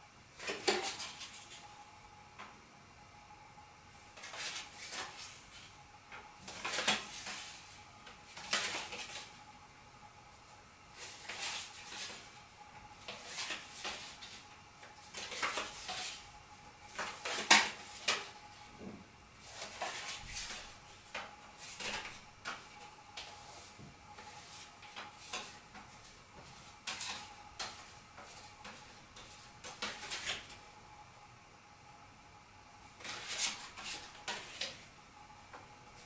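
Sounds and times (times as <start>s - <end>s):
playing cards clicking and rustling: 6.4s - 7.6s, 8.3s - 9.3s, 15.1s - 16.2s, 16.9s - 18.4s, 19.5s - 23.4s, 26.8s - 30.6s.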